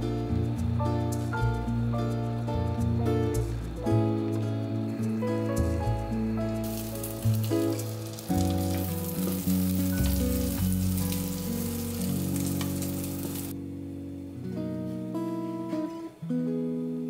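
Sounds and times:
background music: 0:00.0 - 0:17.0
omelette sizzling in oil: 0:06.6 - 0:13.5.

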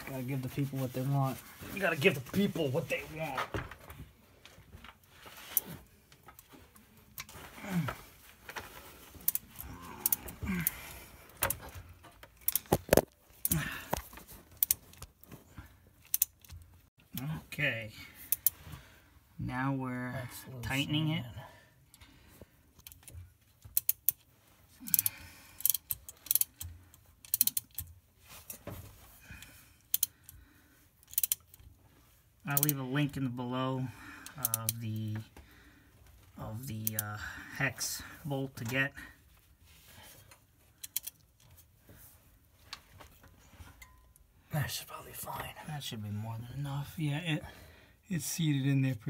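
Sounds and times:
ratchet wrench clicking: 0:24.9 - 0:27.8, 0:31.0 - 0:31.5.

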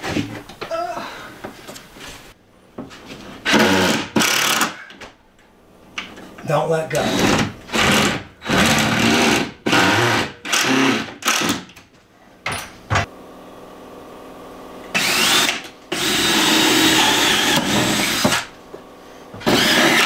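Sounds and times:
cordless drill driving screws: 0:03.5 - 0:04.8, 0:07.0 - 0:11.6, 0:15.0 - 0:18.4, 0:19.4 - 0:20.0.

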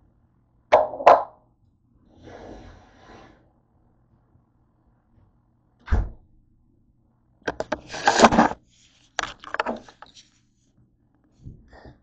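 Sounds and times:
scraping rubbing rustle: 0:07.7 - 0:10.5.

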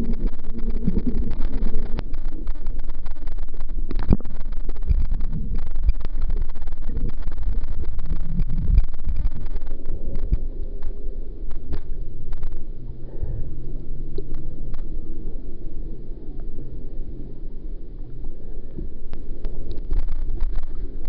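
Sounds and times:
bubbles crackling: 0:00.0 - 0:12.8, 0:19.1 - 0:21.0
low steady hum: 0:00.0 - 0:21.0.

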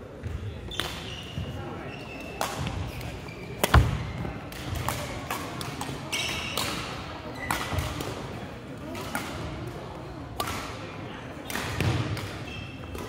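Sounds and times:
shoe squeaks: 0:00.7 - 0:04.2
rackets smacking shuttlecock: 0:02.4 - 0:08.2.

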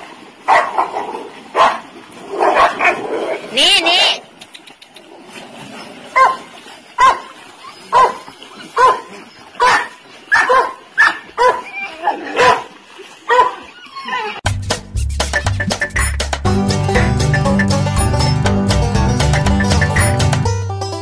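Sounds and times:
dog barking: 0:00.5 - 0:01.8, 0:02.4 - 0:03.0, 0:06.2 - 0:07.3, 0:07.9 - 0:11.7, 0:12.3 - 0:12.7, 0:13.3 - 0:13.7.

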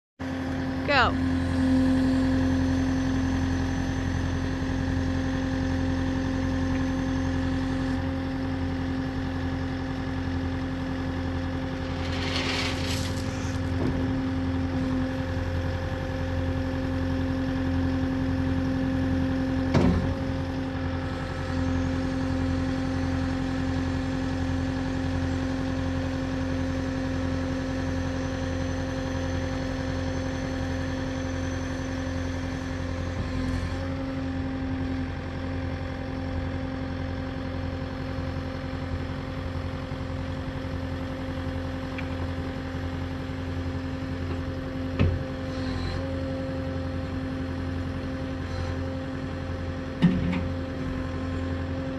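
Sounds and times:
diesel engine running: 0:00.2 - 0:51.9
hydraulics lifting loader arms: 0:11.6 - 0:14.7.

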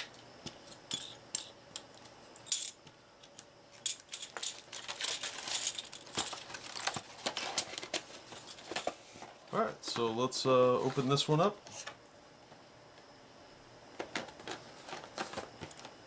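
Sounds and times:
plastic pieces clicking and rattling: 0:03.9 - 0:07.9.

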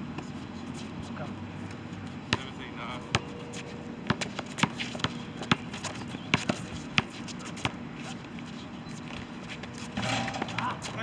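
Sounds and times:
basketball bouncing on concrete: 0:02.3 - 0:03.4, 0:04.0 - 0:07.8.

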